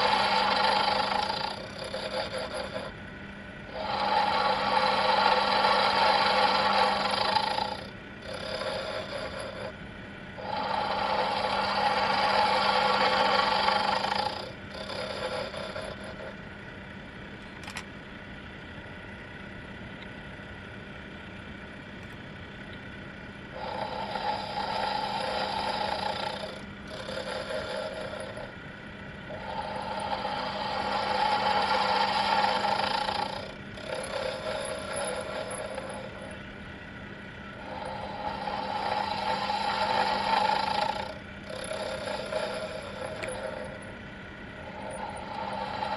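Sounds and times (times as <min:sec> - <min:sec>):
lathe cutting metal: 0:00.0 - 0:03.0, 0:03.7 - 0:09.7, 0:10.4 - 0:16.3, 0:23.6 - 0:28.5, 0:29.3 - 0:36.4, 0:37.6 - 0:43.9, 0:44.6 - 0:45.9
lathe motor hum: 0:00.0 - 0:45.9.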